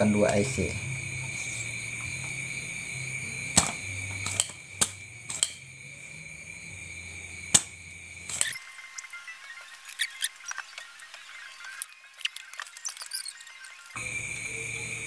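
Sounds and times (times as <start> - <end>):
desoldering pump snapping: 3.5 - 5.6, 7.5 - 8.6.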